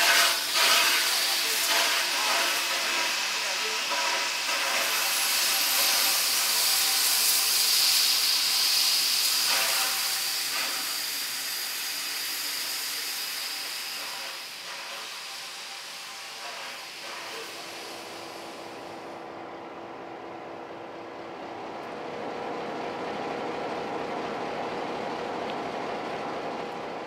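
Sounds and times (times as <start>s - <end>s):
steam locomotive hissing: 0.0s - 19.2s.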